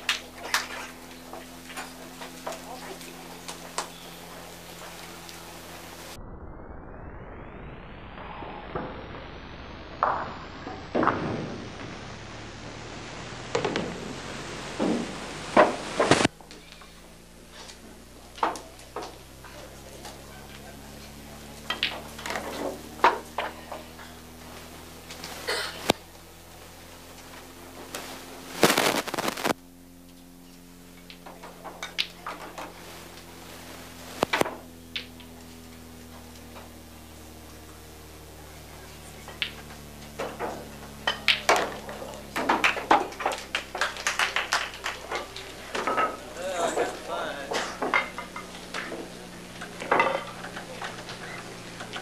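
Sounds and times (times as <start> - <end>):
steady low hum: 0.0 - 52.0
pool balls clicking: 13.4 - 26.1, 30.9 - 52.0
indistinct voices: 36.9 - 52.0.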